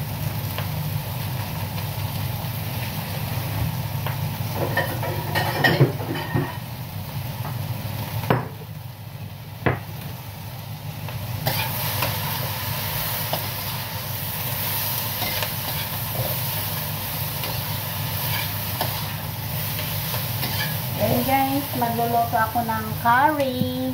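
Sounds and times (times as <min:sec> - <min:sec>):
vegetables sizzling in wok: 0:00.0 - 0:23.9
spatula knocking and scraping wok: 0:04.6 - 0:06.6, 0:19.8 - 0:20.8.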